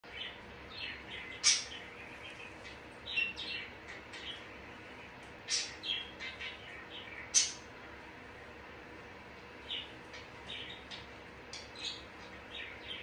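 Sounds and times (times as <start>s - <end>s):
parrot chirps and squawks: 1.3s - 1.8s.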